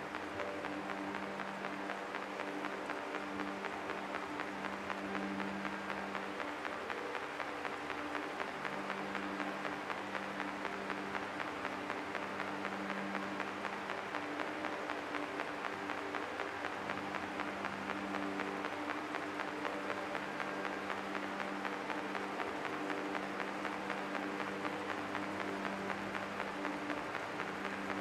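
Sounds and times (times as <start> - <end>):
dense crackling hiss: 0.0 - 28.0.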